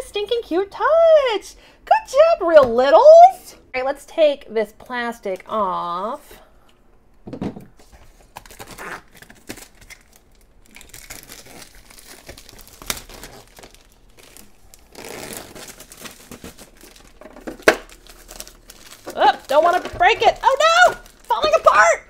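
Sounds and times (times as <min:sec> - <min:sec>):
plastic film crinkling and tearing: 0:08.2 - 0:21.9.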